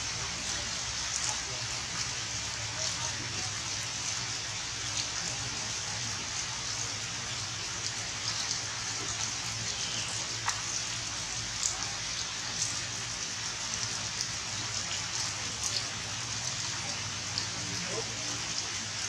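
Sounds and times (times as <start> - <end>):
steady rain falling: 0.0 - 19.0
raindrop ticks: 1.0 - 3.6, 7.8 - 13.0, 13.7 - 18.3.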